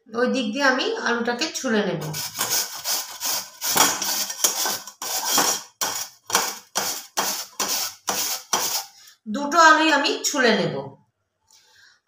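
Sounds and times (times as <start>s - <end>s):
potato rasping on grater: 2.0s - 9.0s.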